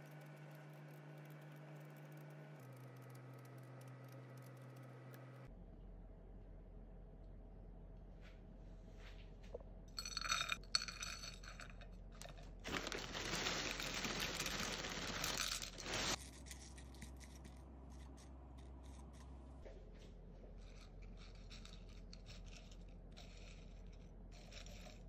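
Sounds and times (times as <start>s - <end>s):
ringing handling sound: 10.0s - 12.4s
cereal pouring onto a plate: 12.7s - 17.0s.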